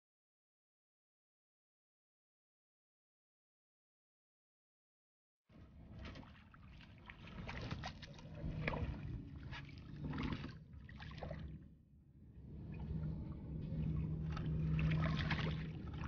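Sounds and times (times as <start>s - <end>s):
water splashing and sloshing: 5.5s - 16.0s
low steady hum: 5.6s - 16.0s.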